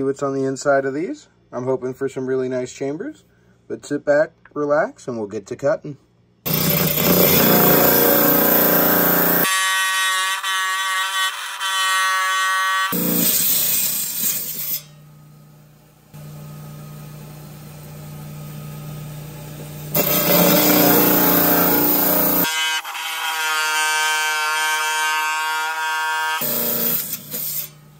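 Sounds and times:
pitched saw whine: 6.5 - 14.9, 19.9 - 27.8
band saw grinding through stone: 6.5 - 15.0, 19.9 - 27.9.

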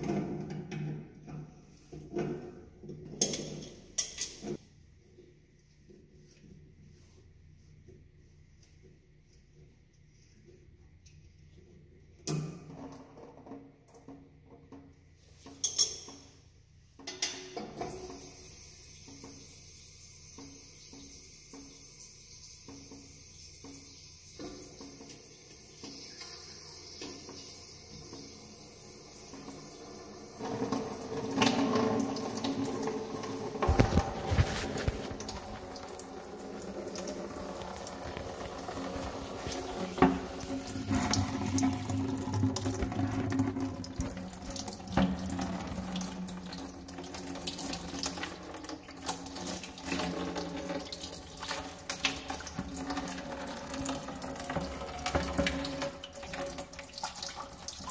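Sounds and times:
water running in sink: 17.8 - 57.9
water pouring into plastic bucket: 29.3 - 57.9.

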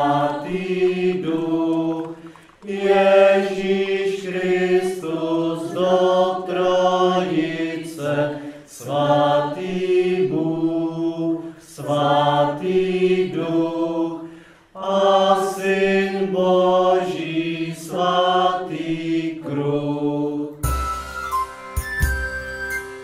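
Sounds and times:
choir singing chant-like chords: 0.0 - 20.7.

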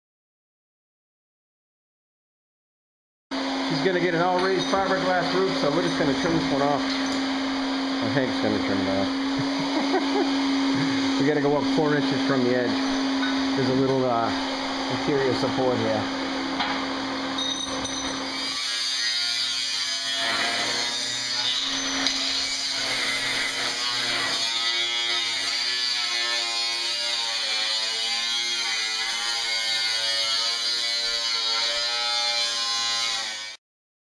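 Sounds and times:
cut-off wheel cutting metal: 3.4 - 17.1, 17.8 - 33.6.

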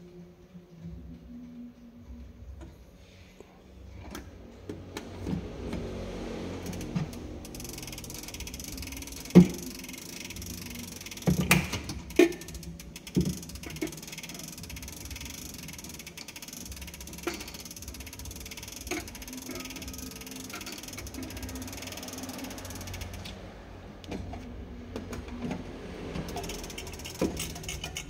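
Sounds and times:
clock winding crank clicks: 6.5 - 24.1, 25.5 - 28.0.

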